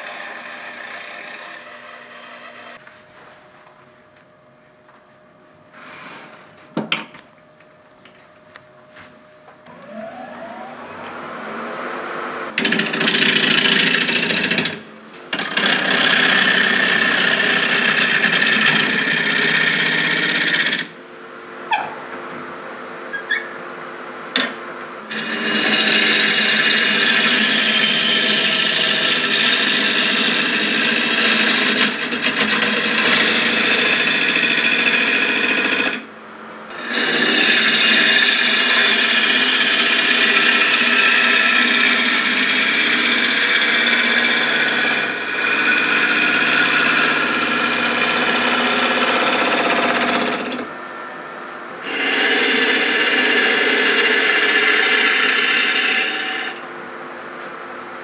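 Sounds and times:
power tool rasping on wood: 12.6s - 20.9s, 25.1s - 36.0s, 36.7s - 50.6s, 51.8s - 56.6s.

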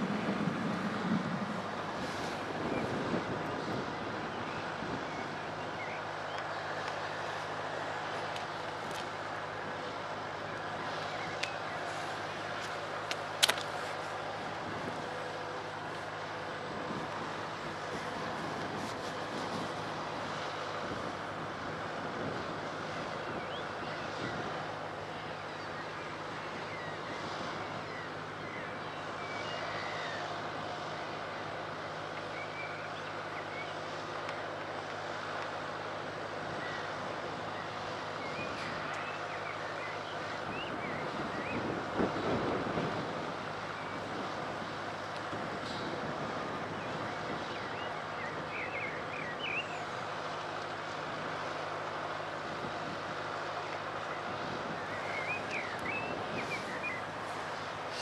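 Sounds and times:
wind noise: 0.0s - 27.9s, 40.2s - 49.2s, 53.9s - 58.0s
distant steam locomotive rumble: 0.0s - 58.0s.

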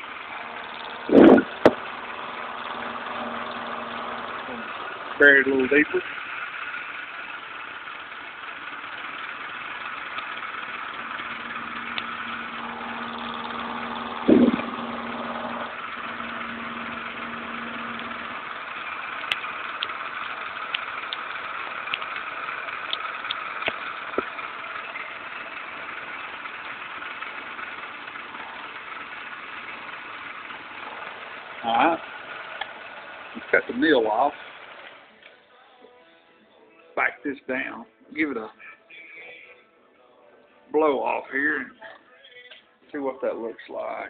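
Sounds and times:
milling machine whirring: 0.0s - 35.0s
loud thump: 1.1s - 1.8s, 14.3s - 14.7s.

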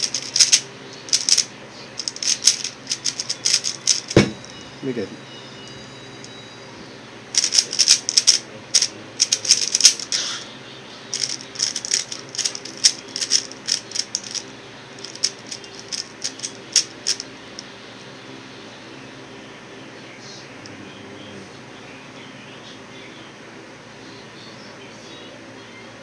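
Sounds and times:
speed cube layers clicking: 0.0s - 1.4s, 2.0s - 4.2s, 7.4s - 10.1s, 11.2s - 14.4s, 15.0s - 17.2s.

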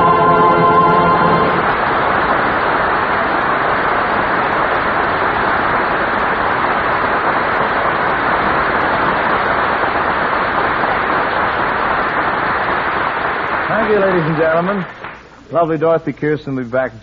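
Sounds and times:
audience applauding: 12.3s - 15.2s.

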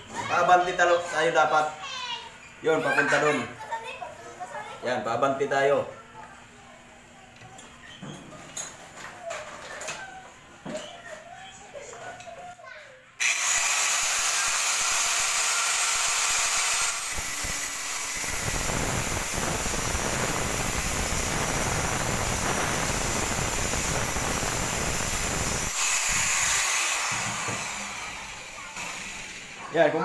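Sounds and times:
grinder cutting steel: 13.2s - 29.7s
angle grinder whining: 13.2s - 30.0s.

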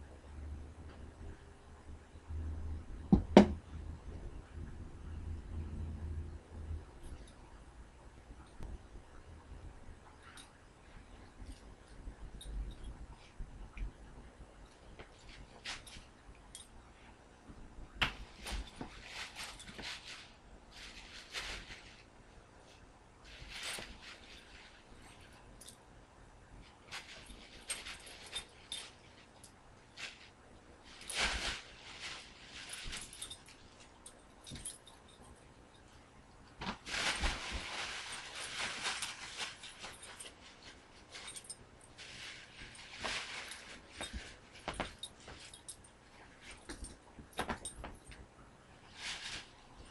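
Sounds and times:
kittens scuffling on carpet: 14.6s - 25.6s, 26.5s - 35.3s, 36.5s - 49.9s
plastic bag crinkling: 36.6s - 45.7s.

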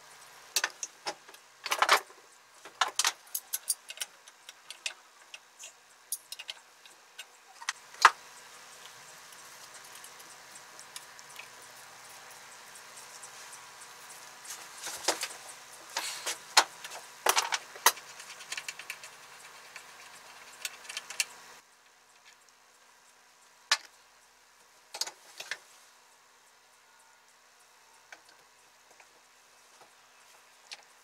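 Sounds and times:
metallic clicks of tools: 2.8s - 8.1s.

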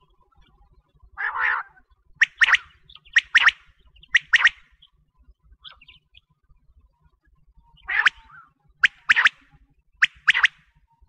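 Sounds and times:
quail calling: 1.2s - 4.7s, 7.8s - 9.4s, 10.0s - 10.6s.

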